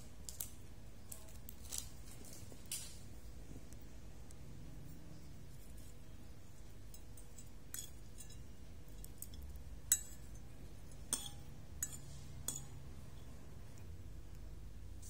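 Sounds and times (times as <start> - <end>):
fork clinking on ceramic plate: 6.9 - 8.6, 9.2 - 12.8.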